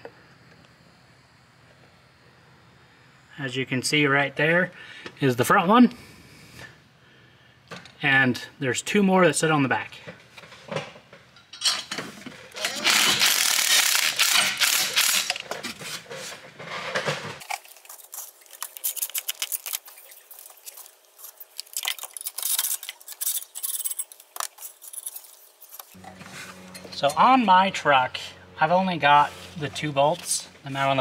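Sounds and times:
cordless power tool rattling: 0:12.5 - 0:15.6.

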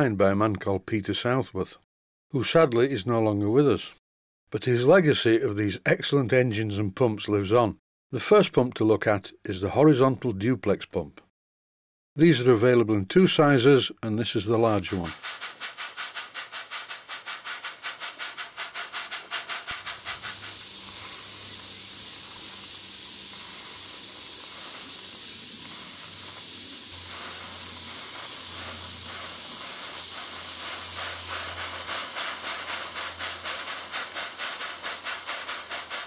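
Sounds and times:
steam pump chuffing and hissing: 0:14.7 - 0:36.0.

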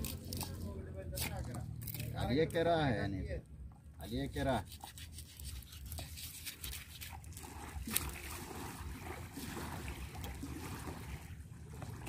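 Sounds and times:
wet squelching of raw fish: 0:04.3 - 0:12.0.

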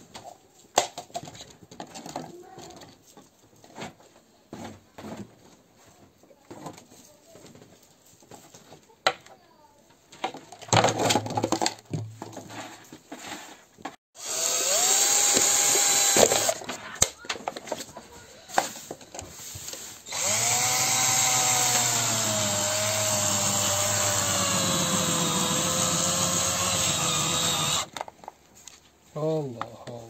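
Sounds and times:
cordless drill whining: 0:14.2 - 0:16.6, 0:20.1 - 0:27.9.

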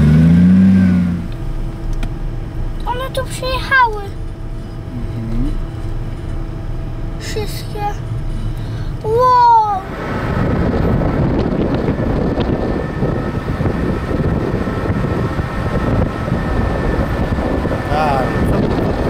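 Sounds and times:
car driving: 0:00.0 - 0:19.0
wind on microphone: 0:09.9 - 0:19.0.

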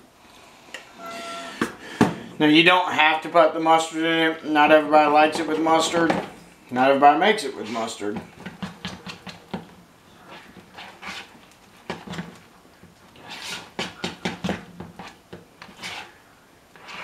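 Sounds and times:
fork scraping bowl: 0:10.2 - 0:11.4, 0:13.2 - 0:14.0, 0:15.0 - 0:16.2.

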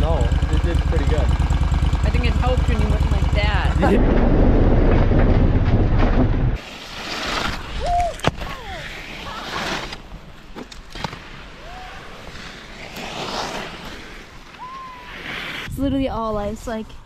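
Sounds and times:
skis scraping on icy snow: 0:06.6 - 0:15.7.

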